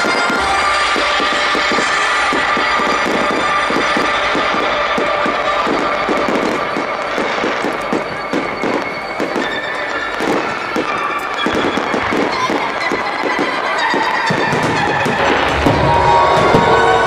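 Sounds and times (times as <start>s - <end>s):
fireworks bursts and bangs: 0.0s - 17.0s.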